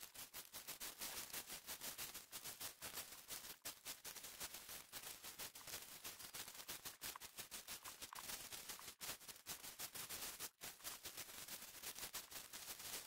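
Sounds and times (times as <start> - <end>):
brush rustling: 3.5 - 9.3, 10.2 - 13.0
footsteps crunching dry leaves: 4.1 - 8.9.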